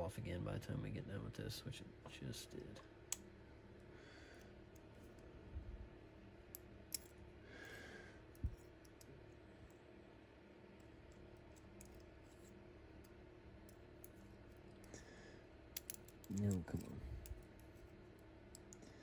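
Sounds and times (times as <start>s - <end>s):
clicks and taps of pistol parts: 6.5s - 7.2s, 10.8s - 14.2s, 15.7s - 16.6s, 18.5s - 18.8s.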